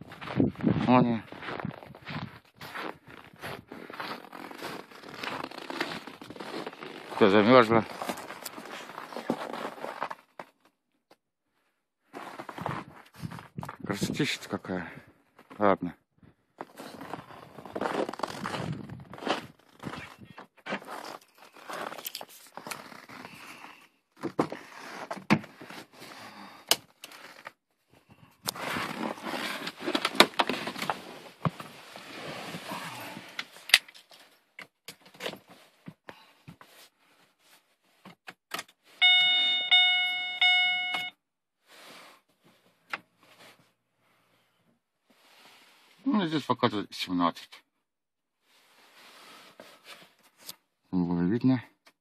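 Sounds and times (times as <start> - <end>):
rustling and crunching: 0.0 - 10.7, 16.6 - 23.6, 28.4 - 35.9
dashboard warning chime: 39.0 - 41.2.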